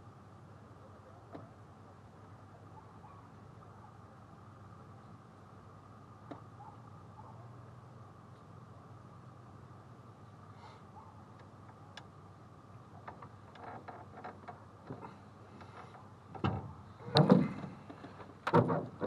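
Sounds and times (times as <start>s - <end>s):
faint clicks: 11.3s - 12.1s
knocks and thuds on plastic hull: 16.4s - 17.7s.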